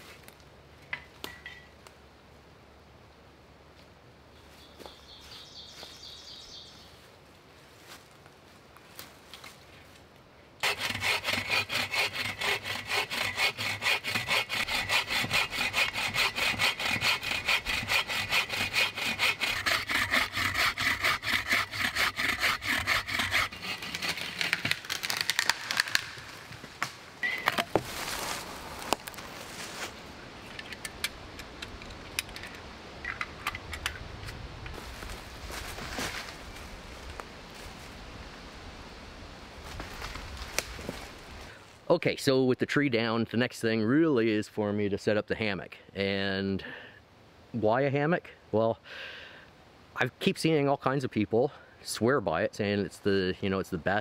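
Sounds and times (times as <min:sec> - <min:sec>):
bow saw cutting wood: 0:10.6 - 0:26.1.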